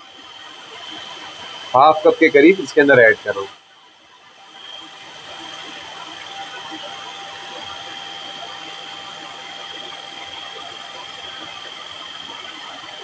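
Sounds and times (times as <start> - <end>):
food processor motor whining: 4.1 - 13.0.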